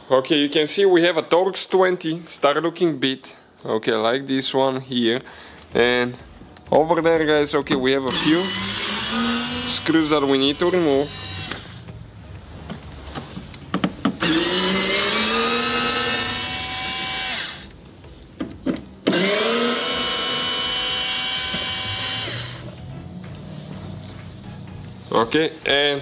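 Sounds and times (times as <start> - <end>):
electric screwdriver motor whine: 8.1 - 11.8, 14.2 - 17.7, 19.1 - 22.7.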